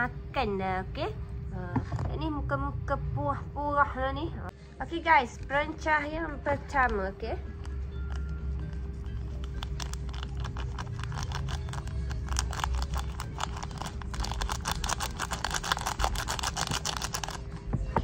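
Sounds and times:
foil sachet crinkling: 8.9s - 17.4s.

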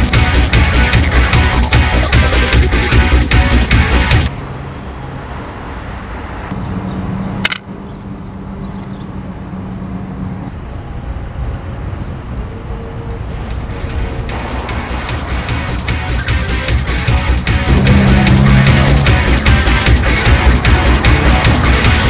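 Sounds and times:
music: 0.0s - 4.3s, 13.4s - 22.0s
city street traffic: 0.0s - 22.0s
sharp click: 7.4s - 7.7s.

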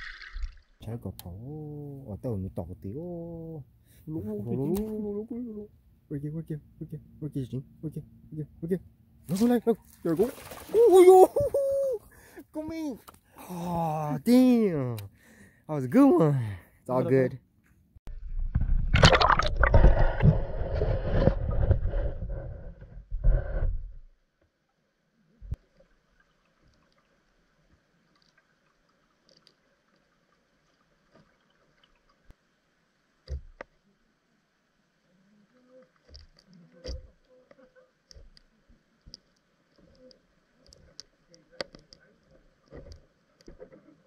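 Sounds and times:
water bubbling and rushing: 0.0s - 0.8s, 10.0s - 11.3s, 18.8s - 21.5s
faint steady underwater hum: 0.0s - 44.0s.

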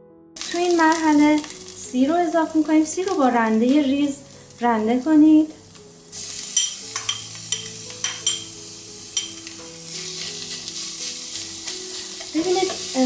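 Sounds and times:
garlic sizzling in hot oil: 0.4s - 13.0s
metal spoon clinking on pan: 6.6s - 8.6s, 9.2s - 9.6s.

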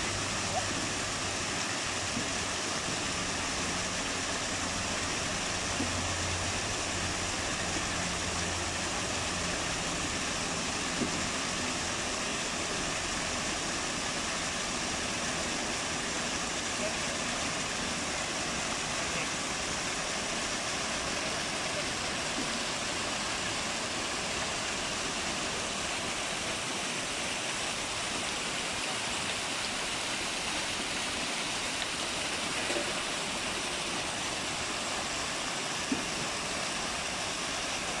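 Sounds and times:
fountain water splashing into pool: 0.0s - 38.0s.

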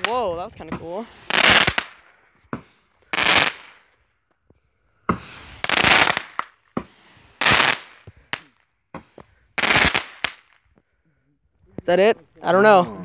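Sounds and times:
fireworks bursts and cracks: 0.0s - 4.1s, 5.0s - 10.8s.

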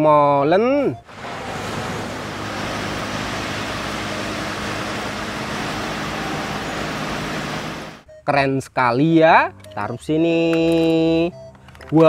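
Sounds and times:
diesel engine running: 1.0s - 8.0s
road and air noise hiss: 1.0s - 8.0s.

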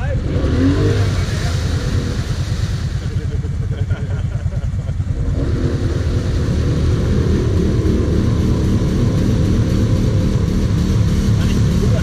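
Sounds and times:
quad engine idling: 0.0s - 12.0s
quad engine revving: 0.0s - 12.0s.

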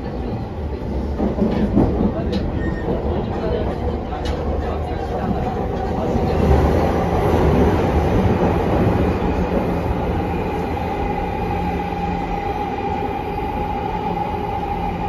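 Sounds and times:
train wheels rumbling on rail: 0.0s - 15.0s
electric train whine: 7.6s - 15.0s.

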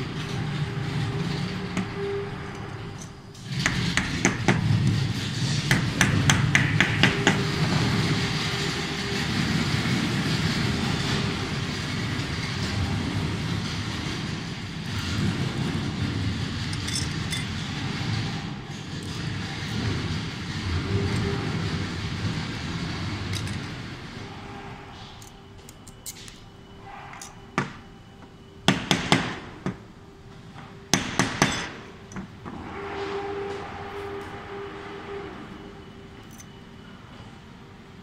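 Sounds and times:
steady background noise: 0.0s - 38.0s.

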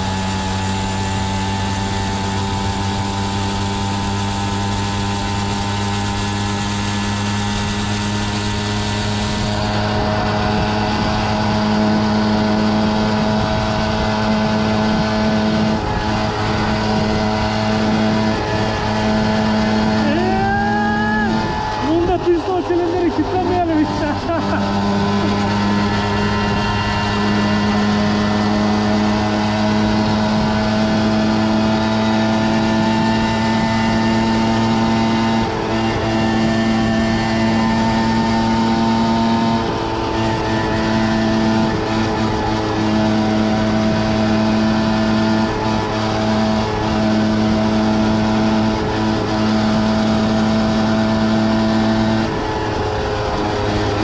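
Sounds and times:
moped engine at high revs: 0.0s - 54.0s.

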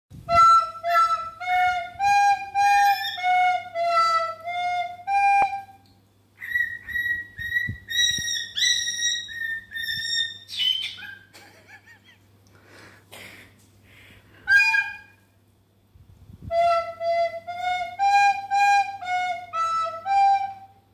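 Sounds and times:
recorder playing slow melody: 0.2s - 7.7s, 14.4s - 15.2s, 16.5s - 20.9s
cockatiel whistling: 0.4s - 5.7s, 6.4s - 11.3s, 14.5s - 15.2s
cockatiel scratchy chirps: 6.4s - 11.3s.

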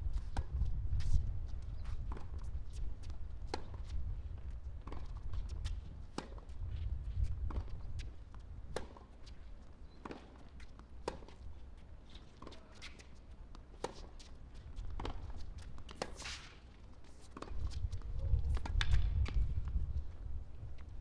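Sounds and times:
tennis ball bouncing: 4.8s - 6.6s, 7.5s - 16.7s, 17.3s - 17.8s
shoe scuffs: 15.2s - 18.6s.

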